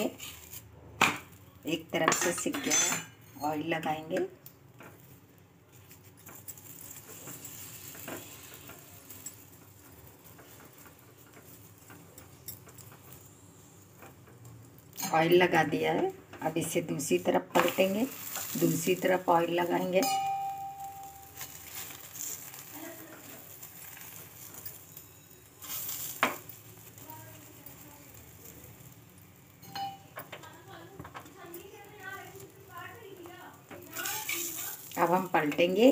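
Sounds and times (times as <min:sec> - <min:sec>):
faint oil sizzle: 0:00.0 - 0:02.5, 0:03.2 - 0:35.9
ladle scraping bread and pan: 0:06.0 - 0:13.2, 0:17.6 - 0:20.2, 0:21.1 - 0:29.0.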